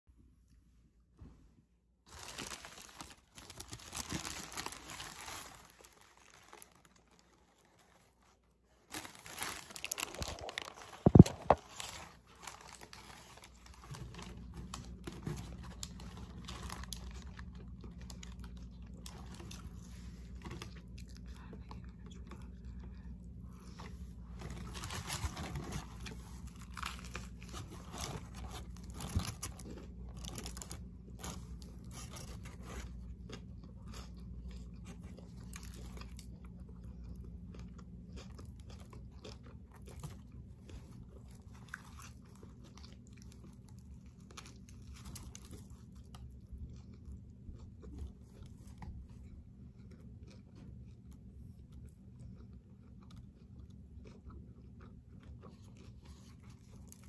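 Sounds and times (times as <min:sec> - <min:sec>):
paper wrapper crinkling: 0:02.1 - 0:21.0, 0:23.7 - 0:33.0
steady low hum: 0:08.0 - 0:57.0.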